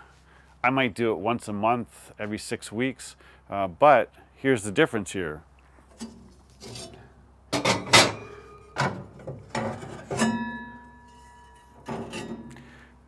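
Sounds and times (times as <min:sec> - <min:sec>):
metal grates clanking and scraping: 0:06.0 - 0:07.0, 0:07.6 - 0:12.7
metal ringing tone: 0:07.9 - 0:08.8, 0:10.1 - 0:12.9.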